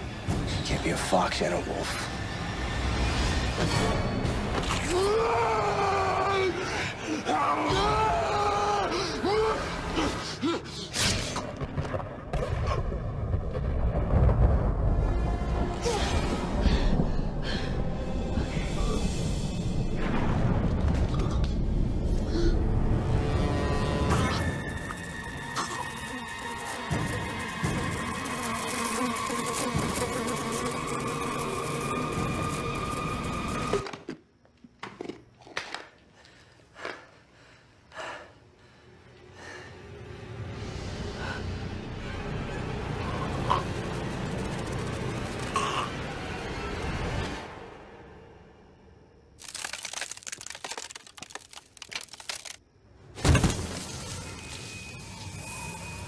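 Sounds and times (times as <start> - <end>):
dark tense film score: 0.0 - 34.4, 36.2 - 50.0, 52.7 - 56.0
buzzing swarm of flies: 24.5 - 33.8
short sharp cracks: 49.4 - 52.6.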